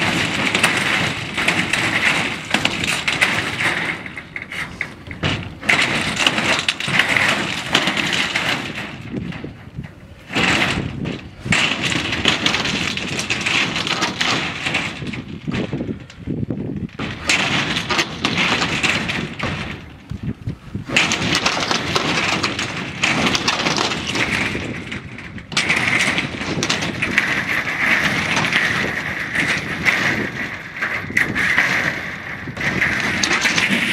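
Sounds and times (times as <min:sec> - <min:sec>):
tin sheet rattling and scraping: 0:00.0 - 0:33.9.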